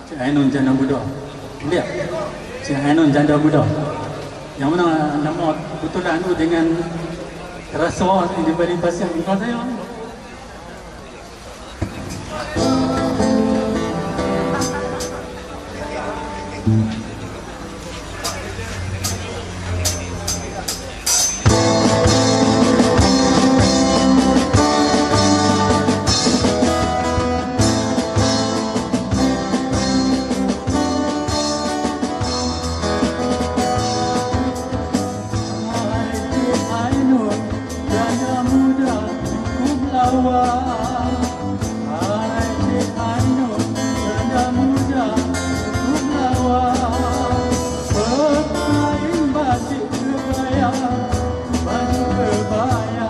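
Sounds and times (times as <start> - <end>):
drum kit: 11.8 - 15.6, 16.5 - 53.0
strummed acoustic guitar: 11.9 - 53.0
man singing: 12.5 - 15.0, 21.5 - 31.2, 33.8 - 53.0.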